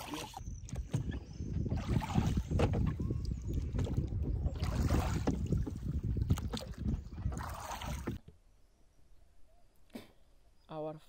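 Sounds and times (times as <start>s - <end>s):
water splashing against boat hull: 0.0s - 8.3s
wind buffeting microphone: 0.4s - 8.2s.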